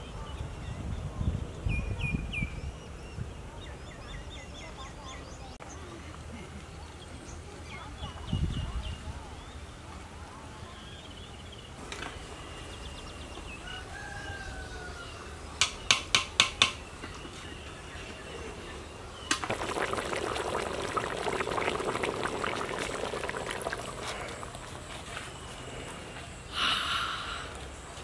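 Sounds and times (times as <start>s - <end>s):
curry bubbling in a pot: 19.3s - 25.1s.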